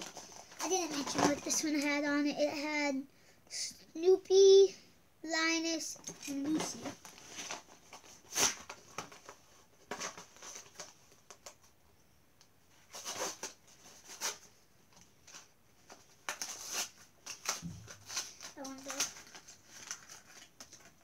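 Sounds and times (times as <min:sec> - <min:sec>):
plastic packaging crinkling: 0:15.2 - 0:21.0.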